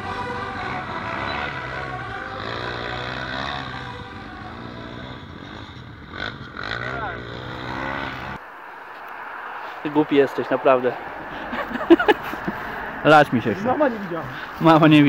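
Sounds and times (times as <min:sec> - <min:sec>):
quad bike engines revving: 0:00.0 - 0:08.4.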